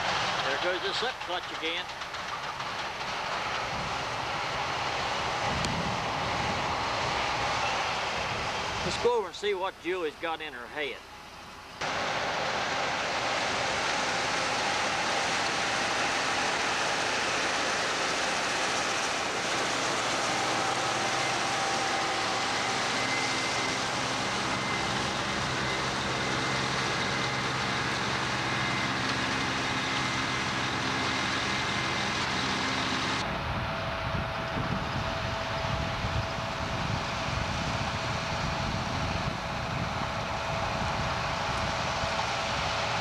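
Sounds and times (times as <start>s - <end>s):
diesel engine drone: 0.0s - 43.0s
threshing machinery rushing: 11.8s - 37.9s.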